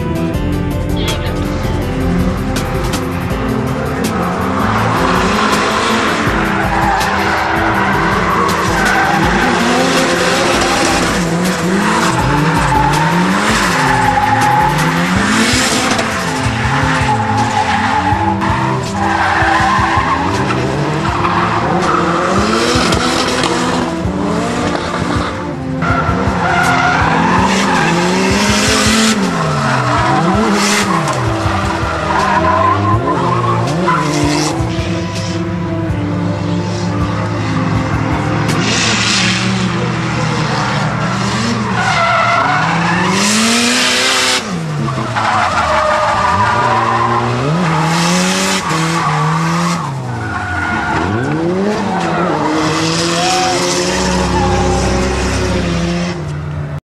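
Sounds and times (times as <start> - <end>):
car engines revving: 0.0 - 56.8
tyres squealing: 44.8 - 55.4.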